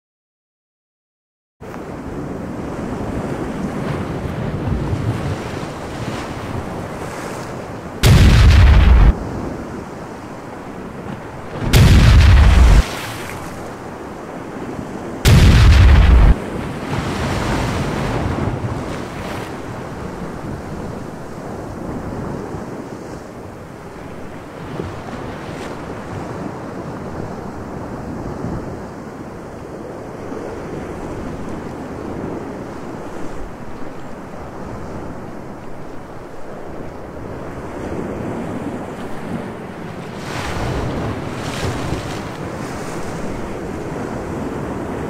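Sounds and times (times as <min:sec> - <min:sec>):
wind: 0:01.6 - 0:45.0
sea waves: 0:01.7 - 0:27.8, 0:29.9 - 0:45.0
heavy gun blast: 0:08.0 - 0:09.1, 0:11.7 - 0:12.9, 0:15.3 - 0:16.4.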